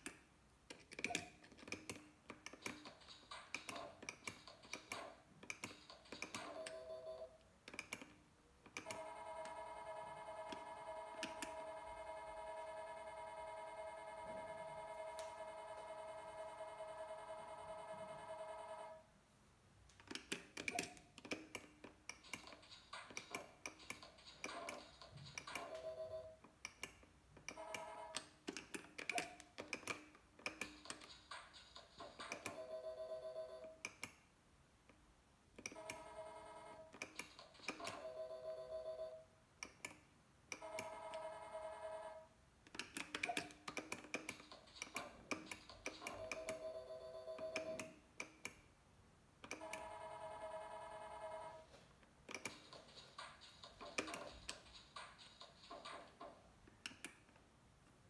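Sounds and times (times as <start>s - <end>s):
slot machine ticking and blips: 2.7s - 7.4s, 8.8s - 19.0s, 22.2s - 26.4s, 27.5s - 28.3s, 30.6s - 33.8s, 40.6s - 42.3s, 44.2s - 47.9s, 49.5s - 51.6s.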